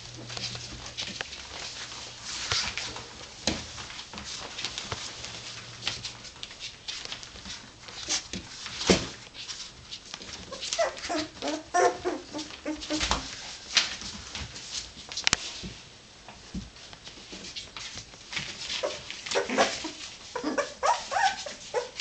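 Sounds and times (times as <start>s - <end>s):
puppies whimpering and squeaking: 10.4s - 13.4s, 18.8s - 22.0s.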